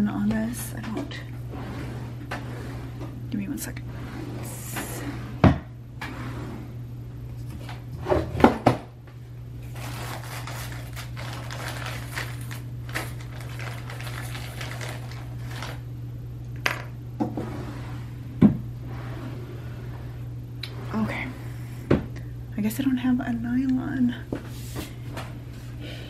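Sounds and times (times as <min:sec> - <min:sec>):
steady low hum: 0:00.0 - 0:26.0
rustling: 0:09.7 - 0:15.8.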